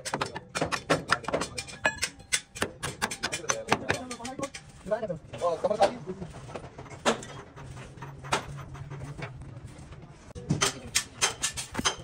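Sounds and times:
sharp knocks and clicks: 0:00.0 - 0:04.7.

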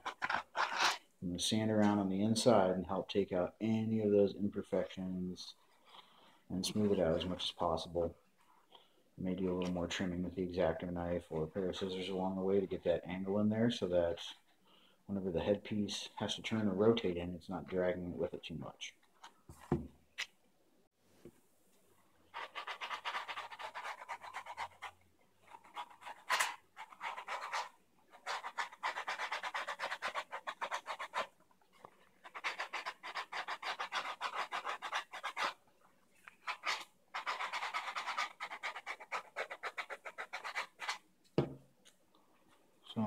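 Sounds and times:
sandpaper scratching foam: 0:00.0 - 0:01.0, 0:22.3 - 0:31.4, 0:32.2 - 0:35.6, 0:36.4 - 0:41.0.

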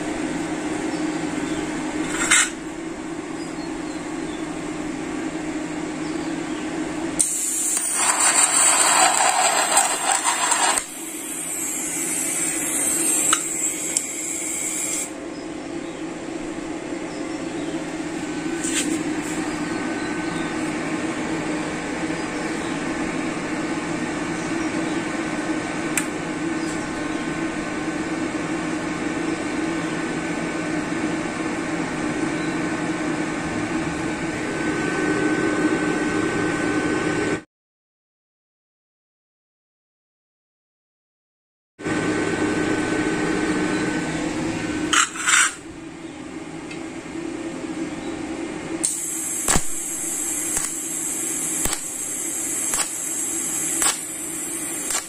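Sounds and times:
welding arc hissing and crackling: 0:07.2 - 0:15.1, 0:48.8 - 0:55.0
welder humming: 0:07.2 - 0:15.2, 0:48.8 - 0:55.0.

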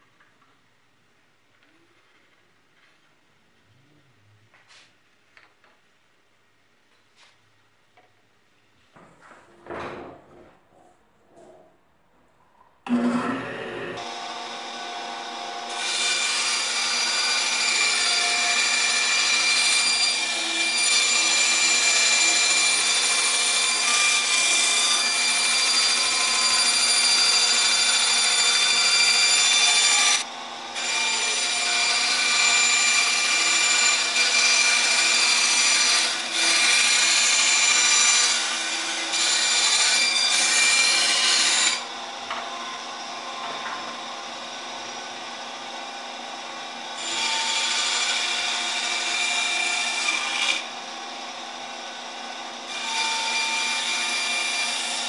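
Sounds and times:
band saw cutting board: 0:12.9 - 0:55.0.

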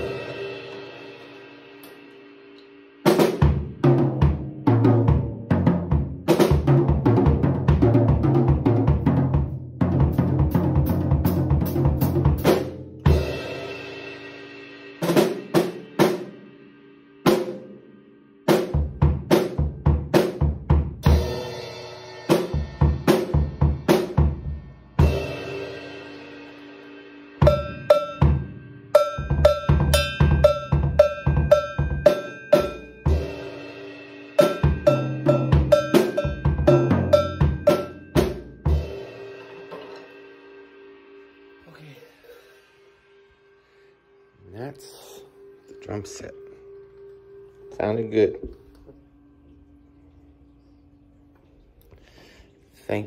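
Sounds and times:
fast drum kit playing: 0:00.0 - 0:02.4, 0:03.0 - 0:16.5, 0:17.2 - 0:17.8, 0:18.5 - 0:40.7.

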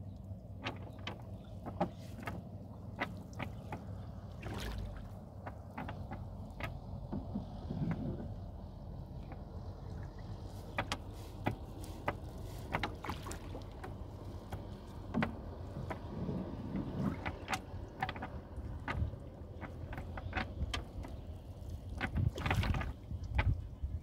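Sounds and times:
low steady rumble: 0:00.0 - 0:24.0
net clicking and tapping on wood: 0:10.7 - 0:16.1, 0:17.2 - 0:21.2
knocks on boat planks: 0:10.7 - 0:21.2.

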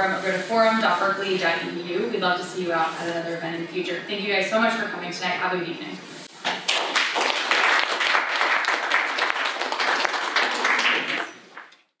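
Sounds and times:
audience applauding: 0:06.4 - 0:11.8.

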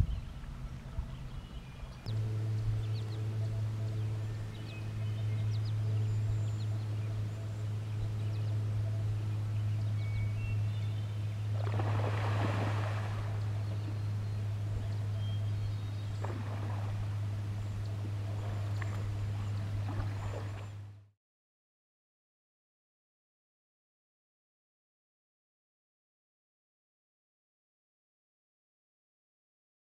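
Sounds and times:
steady low hum: 0:00.0 - 0:21.1
water splashing: 0:11.0 - 0:20.9.

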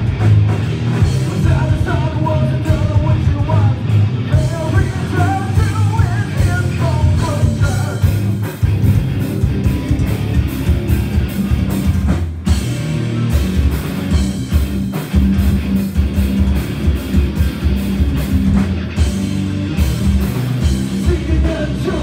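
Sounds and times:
rock band playing live: 0:00.0 - 0:22.0
person singing: 0:01.2 - 0:08.2, 0:20.9 - 0:22.0.

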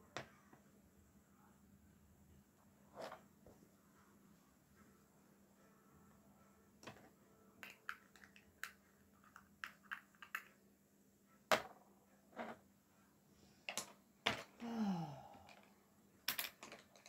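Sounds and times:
makeup items clicking and tapping: 0:06.8 - 0:10.6, 0:16.3 - 0:17.0.

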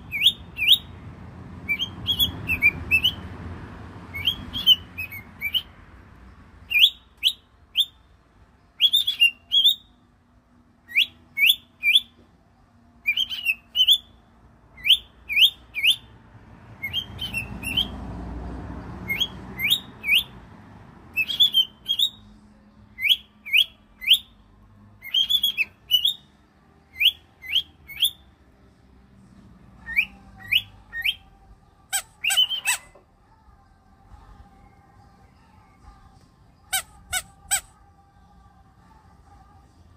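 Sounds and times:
cockatiel calls: 0:08.8 - 0:09.9, 0:13.0 - 0:14.1, 0:21.2 - 0:22.2, 0:25.0 - 0:26.2, 0:31.9 - 0:33.0.

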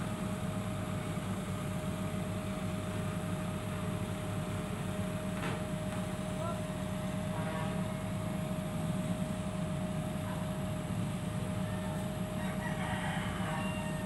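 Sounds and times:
engine low rumble: 0:00.0 - 0:14.0
rooster crowing: 0:11.6 - 0:14.0.

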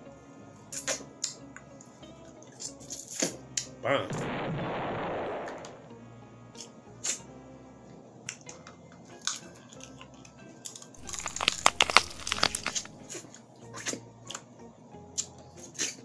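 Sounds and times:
crab shells cracking: 0:10.6 - 0:13.0.

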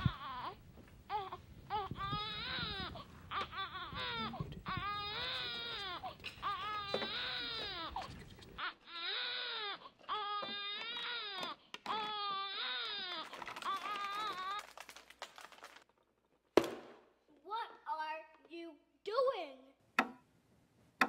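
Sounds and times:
baby crying: 0:00.0 - 0:14.8.

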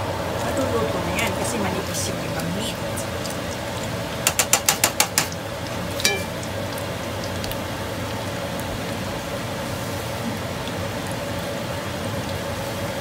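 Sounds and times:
oil sizzling in a pan: 0:00.0 - 0:13.0
metal tongs clicking: 0:06.0 - 0:06.5.

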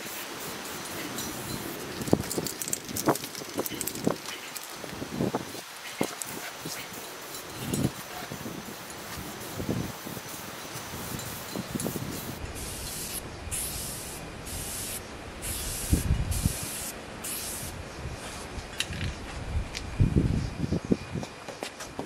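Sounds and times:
spray paint can hissing: 0:00.0 - 0:17.8.

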